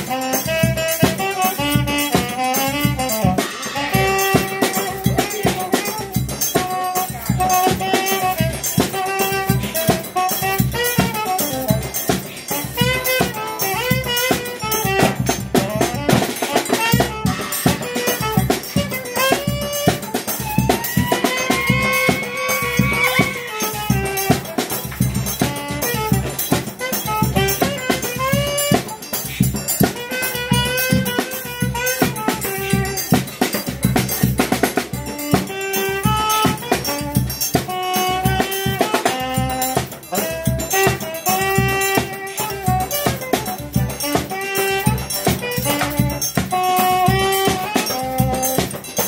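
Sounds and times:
accordion: 0.0 - 49.0
drum kit and cymbal: 0.0 - 49.0
hand drum beating: 0.0 - 49.0
saxophone melody: 0.0 - 49.0
bass drum beating: 17.0 - 28.7.

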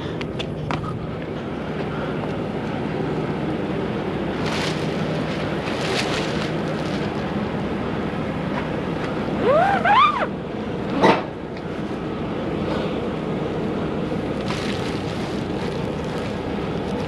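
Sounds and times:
plastic wrap crackling: 4.4 - 7.2, 14.4 - 17.0
short squeal: 9.4 - 10.3.

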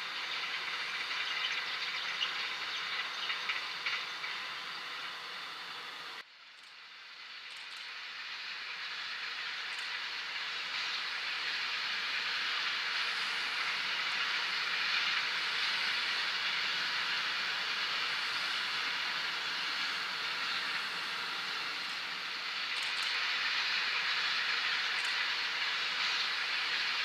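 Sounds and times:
freight train wheels rolling: 0.0 - 27.0.

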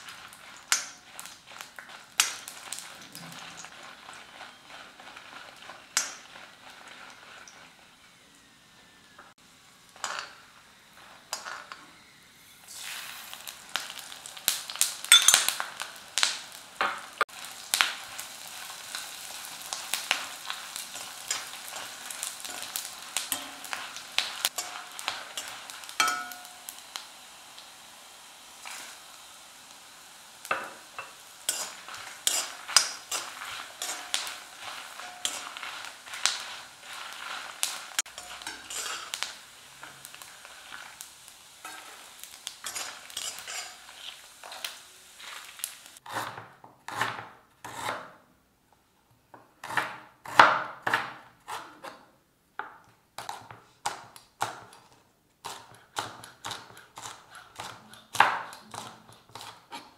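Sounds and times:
food sizzling in a pan: 0.0 - 48.2, 53.2 - 59.9
utensil scraping and clinking pan: 15.0 - 15.6, 20.9 - 26.8, 30.4 - 41.0, 41.6 - 45.4.

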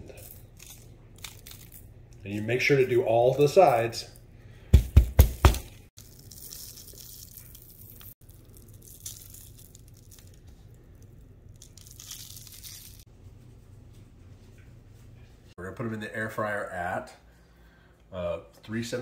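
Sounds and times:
parchment paper crinkling: 6.0 - 13.1.

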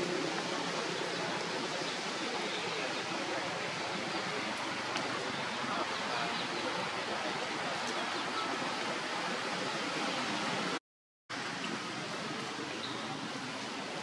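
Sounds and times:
rain on foliage: 0.0 - 10.8.

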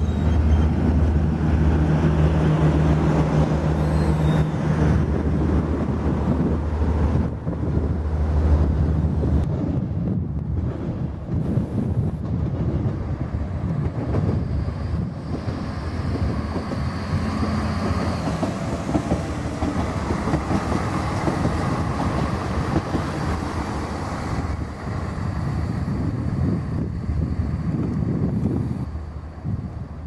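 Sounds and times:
diesel railcars passing: 0.0 - 30.0
wind buffeting microphone: 0.0 - 30.0.

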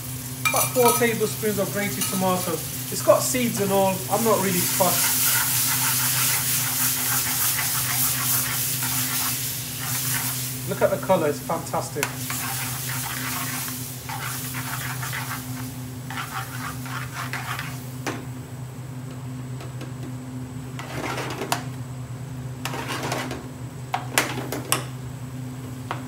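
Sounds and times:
spoon stirring sauce in a pan: 4.6 - 10.4, 12.0 - 17.8.

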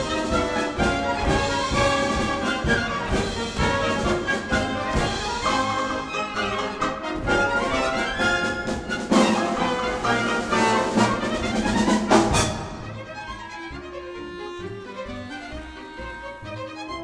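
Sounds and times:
orchestral music with brass: 0.0 - 17.0.

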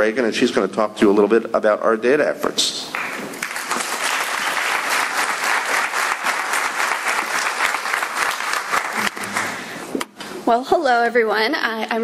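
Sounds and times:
audience applauding: 2.9 - 9.8.

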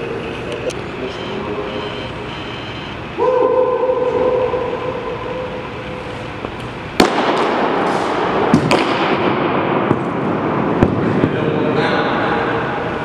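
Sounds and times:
steady hum: 0.0 - 13.0
baseball smacking into mitt: 8.5 - 9.3.

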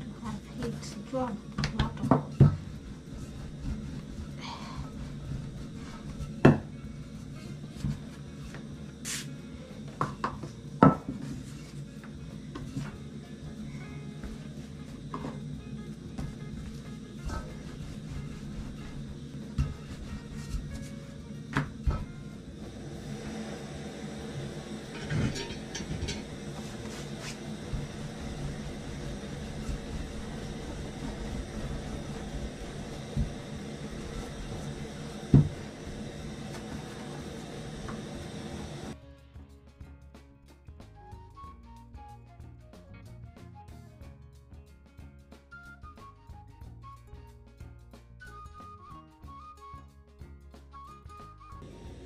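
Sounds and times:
low steady hum: 0.0 - 39.0, 51.6 - 52.0
rolling pin rolling dough: 0.0 - 39.0, 50.8 - 52.0
steady low rumble: 13.2 - 39.0
dough swishing off table: 16.2 - 22.2, 26.2 - 38.9
rolling pin knocking on table: 35.2 - 35.6.

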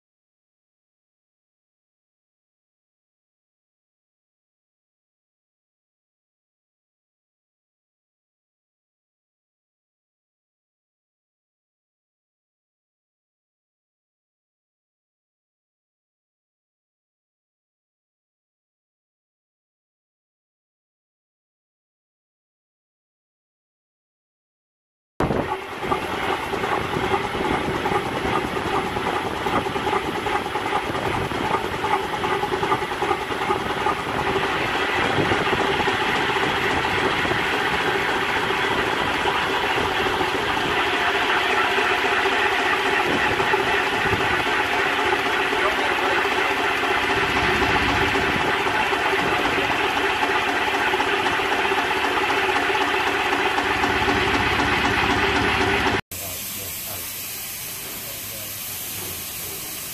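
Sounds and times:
steam rushing and hissing: 25.3 - 59.9
rapid clattering: 25.5 - 56.0.

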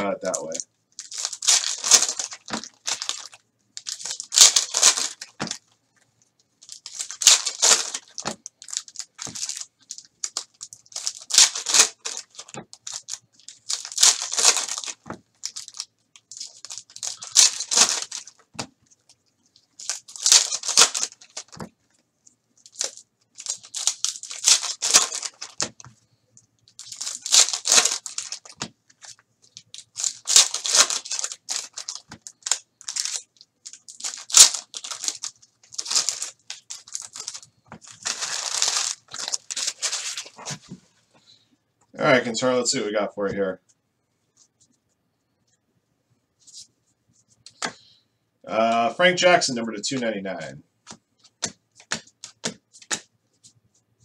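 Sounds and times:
foil wrappers ripped and crinkled: 0.3 - 5.6, 6.6 - 18.5, 19.8 - 21.6, 22.6 - 25.8, 26.7 - 40.5.

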